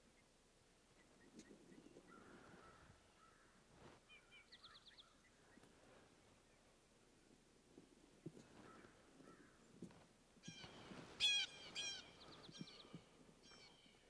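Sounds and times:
turkeys calling: 10.4 - 13.9.

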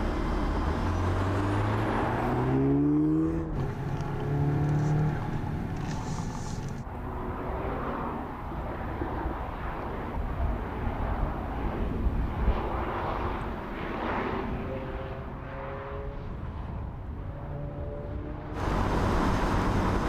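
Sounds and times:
distant car engine at speed: 0.0 - 10.0, 12.5 - 20.0
steady rumble: 18.6 - 20.0.

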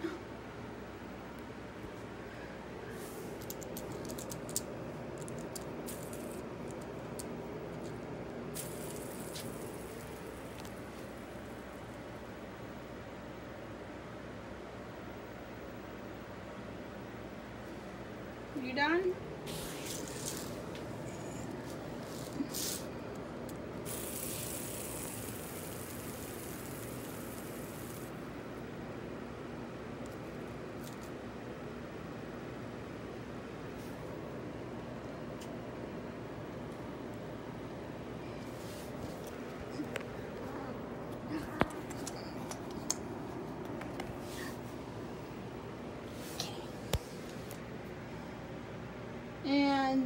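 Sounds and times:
low background hum: 0.0 - 50.0
fidget spinner spinning on floor: 3.0 - 12.4, 19.4 - 28.4.

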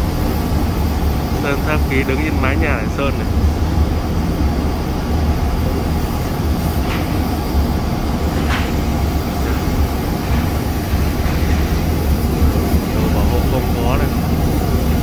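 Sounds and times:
industrial roar with low rumble: 0.0 - 15.0.

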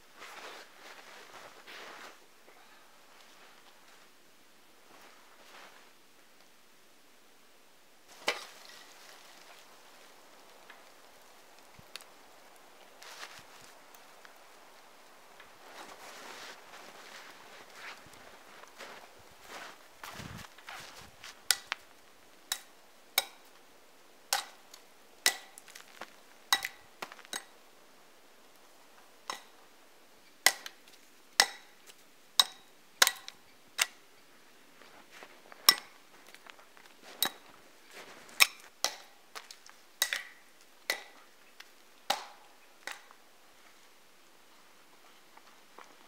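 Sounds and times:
hatchet striking tree trunk: 22.5 - 23.4, 24.3 - 24.6, 25.2 - 25.8, 26.5 - 27.5, 30.4 - 30.8, 31.4 - 31.8, 32.4 - 34.0, 38.4 - 39.2, 40.0 - 41.2, 42.1 - 43.1.

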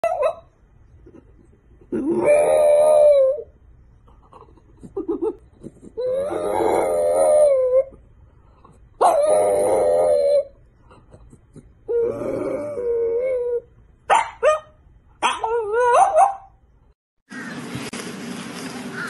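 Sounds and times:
dog yelping: 0.0 - 0.5, 9.0 - 10.6, 12.7 - 16.6
dog howling: 2.1 - 3.5, 6.0 - 7.9, 9.0 - 10.6.

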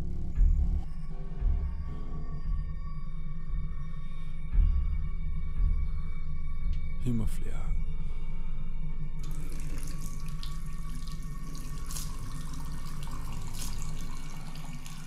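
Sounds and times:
low steady hum: 7.4 - 15.0
tap water running into sink: 9.2 - 15.0
water splashing: 9.2 - 15.0.

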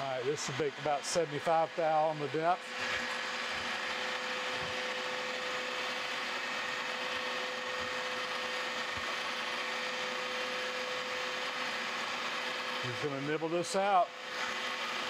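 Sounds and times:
milling machine cutting metal: 0.0 - 15.0.

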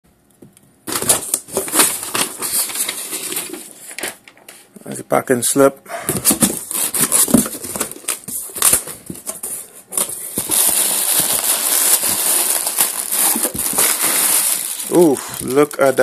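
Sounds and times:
plastic bag crinkling: 10.0 - 16.0.

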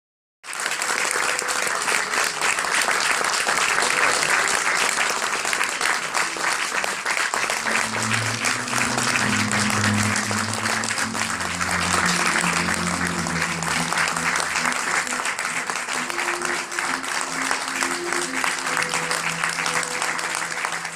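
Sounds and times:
audience applauding: 0.4 - 20.9
music with low sustained notes: 7.4 - 20.9.

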